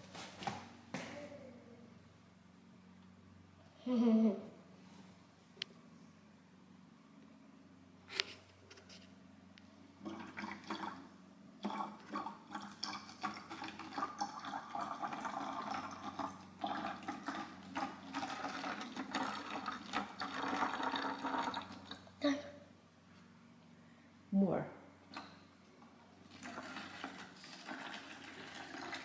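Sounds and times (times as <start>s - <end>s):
liquid pouring: 10.0s - 22.1s, 26.2s - 29.0s
liquid sloshing and splashing: 26.2s - 29.0s.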